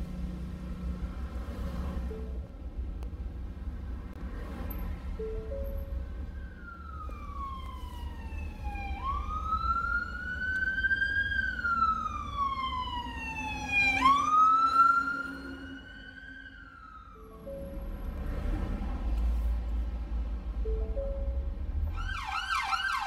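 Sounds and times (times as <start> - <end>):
engine and road rumble: 0.0 - 23.0
ambulance siren wailing: 5.5 - 17.9, 21.9 - 23.0.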